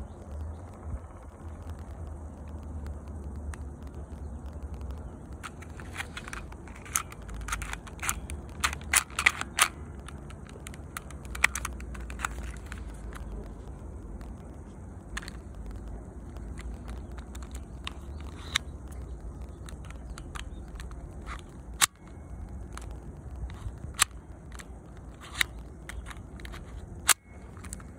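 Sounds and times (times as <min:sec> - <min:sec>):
low steady rumble: 0:00.0 - 0:27.9
toy pistol mechanical clicks: 0:05.3 - 0:13.5, 0:15.1 - 0:27.9.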